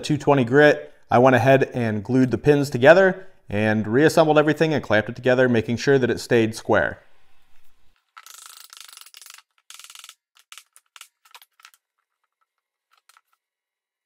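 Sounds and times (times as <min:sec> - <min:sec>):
rustling and scraping: 0:07.2 - 0:13.5.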